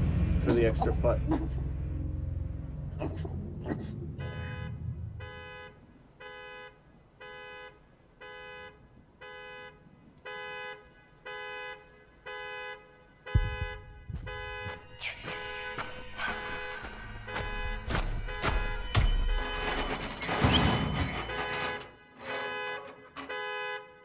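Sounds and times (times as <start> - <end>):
car alarm horn honks: 4.2 - 24.0
loud thump: 13.4 - 14.7.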